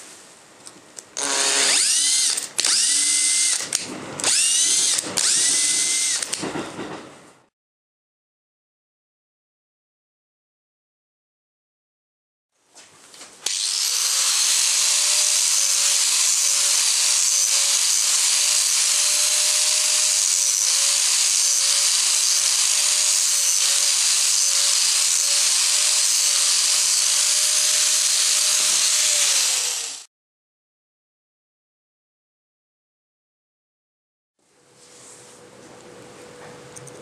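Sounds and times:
angle grinder sanding wood: 0:13.5 - 0:30.1.

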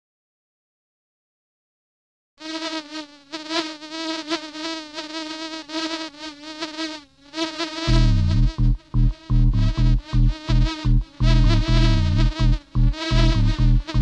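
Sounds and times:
bee buzzing: 0:02.4 - 0:14.0
deep heavy bass notes: 0:07.9 - 0:14.0
title music: 0:07.9 - 0:14.0.

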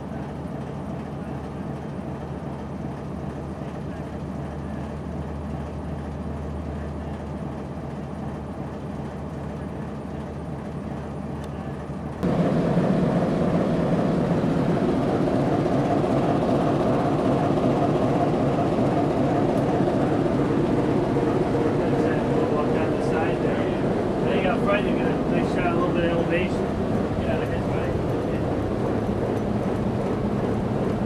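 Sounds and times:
diesel engine running: 0:09.2 - 0:31.0.

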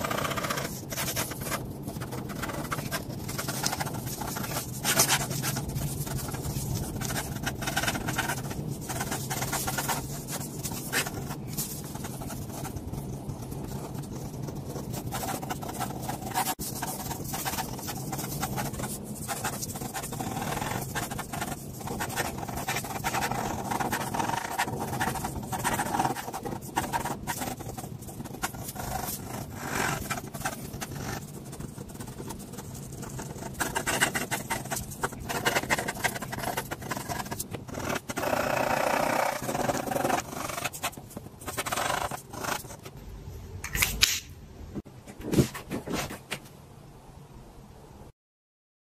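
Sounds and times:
pen scratching on paper: 0:00.0 - 0:42.9, 0:45.2 - 0:46.4
steady low hum: 0:00.0 - 0:43.6.

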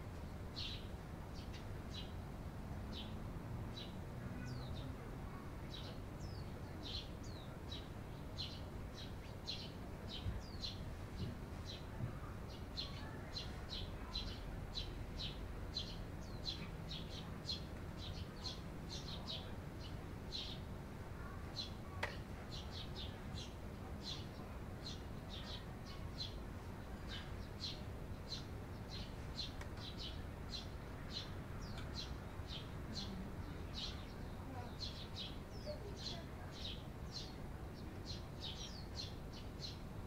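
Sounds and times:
sparrows chirping: 0:00.1 - 0:40.0.

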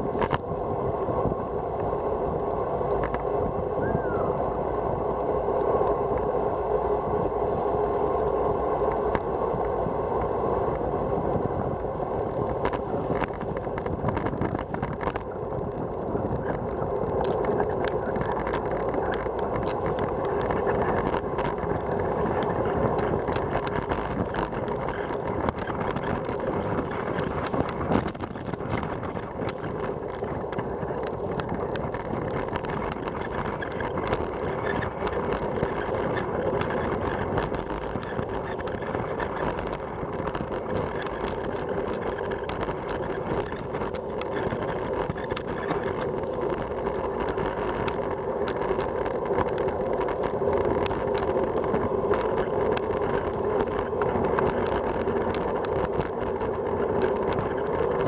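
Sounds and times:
road noise: 0:00.0 - 0:58.0
wind on microphone: 0:00.0 - 0:58.0
sharp clicks and rattles: 0:11.8 - 0:58.0.

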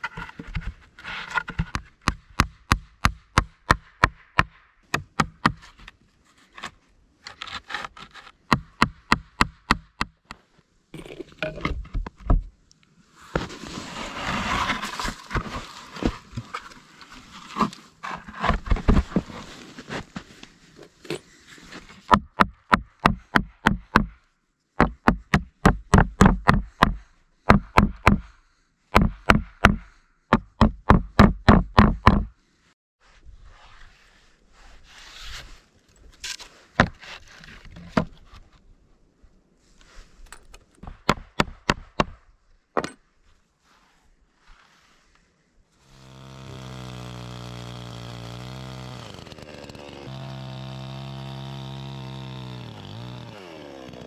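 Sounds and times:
hammer driving nails into wood: 0:01.7 - 0:05.6, 0:08.5 - 0:10.2, 0:24.8 - 0:28.3, 0:29.0 - 0:32.3, 0:40.8 - 0:42.2
scraping and rustling: 0:13.2 - 0:22.1.

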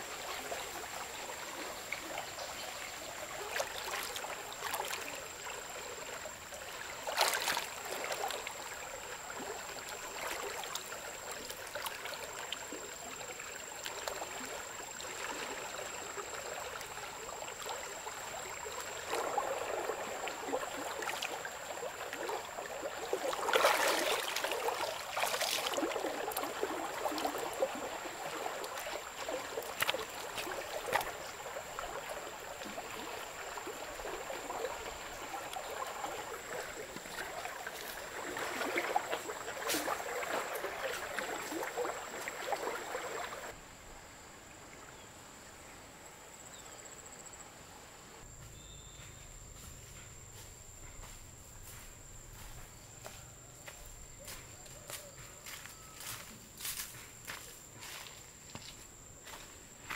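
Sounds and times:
river water flowing: 0:00.0 - 0:47.4
person splashing in water: 0:07.0 - 0:08.4, 0:19.0 - 0:43.6.

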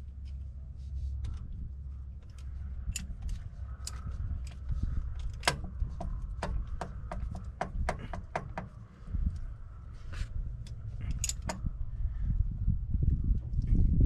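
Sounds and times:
steady low rumble: 0:00.0 - 0:14.0
socket wrench clicking: 0:02.3 - 0:08.7, 0:11.1 - 0:11.7.

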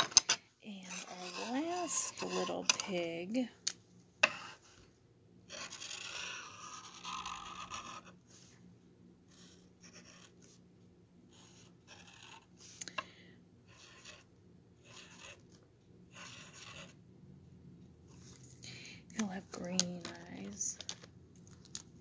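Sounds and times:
marker scratching on wood: 0:00.9 - 0:03.2, 0:05.5 - 0:08.2, 0:09.3 - 0:10.5, 0:11.3 - 0:12.5, 0:13.7 - 0:15.5, 0:16.1 - 0:17.0.

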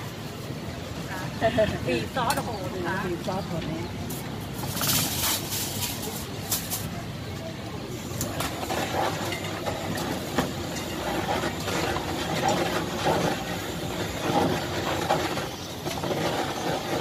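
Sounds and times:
crowd chatter: 0:00.0 - 0:17.0
blowtorch hissing: 0:07.8 - 0:17.0.

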